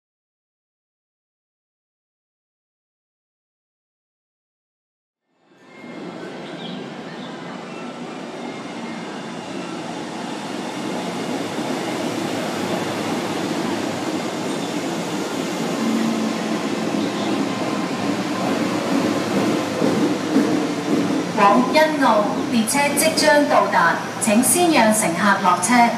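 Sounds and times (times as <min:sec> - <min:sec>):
train rumbling: 0:05.4 - 0:25.9.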